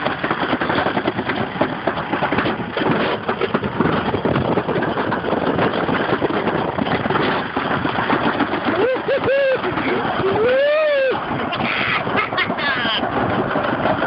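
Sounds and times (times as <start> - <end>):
sled rattling on metal track: 0.0 - 14.0.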